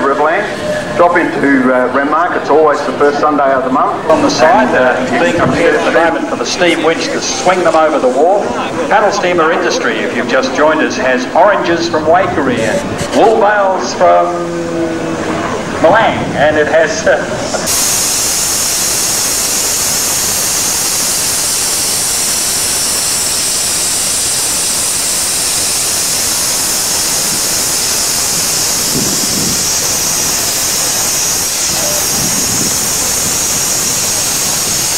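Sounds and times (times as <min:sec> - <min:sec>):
faint voices: 0:00.0 - 0:17.7
steam locomotive hissing: 0:00.0 - 0:34.9.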